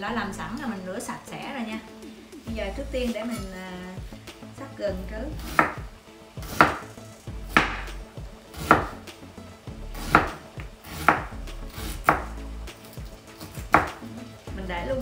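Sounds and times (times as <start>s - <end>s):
knife chopping on wooden board: 5.4s - 6.9s, 7.5s - 7.9s, 8.5s - 9.0s, 10.0s - 12.3s, 13.4s - 14.1s.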